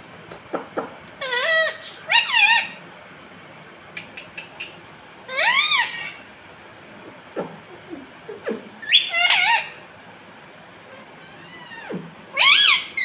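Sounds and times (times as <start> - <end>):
parakeet squeaking: 1.2 - 2.8, 5.3 - 6.2, 8.8 - 9.8, 11.2 - 13.0
faint clicks: 4.0 - 4.8.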